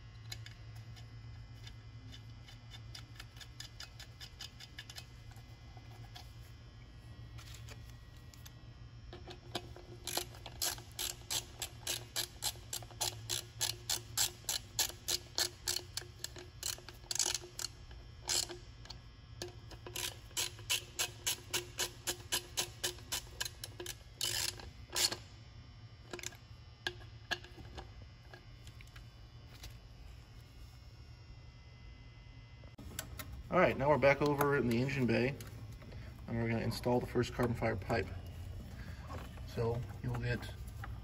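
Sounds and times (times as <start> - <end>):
hand ratchet clicking: 1.6 - 5.2, 9.5 - 18.6, 19.4 - 25.2.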